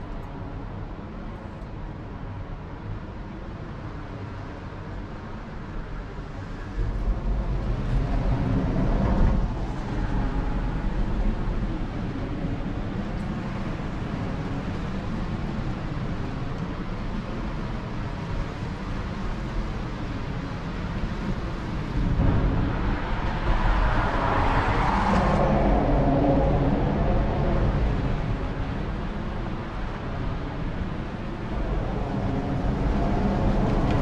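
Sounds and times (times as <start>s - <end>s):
road traffic rumble: 4.2s - 34.0s
vehicle passing over bridge: 21.9s - 29.3s.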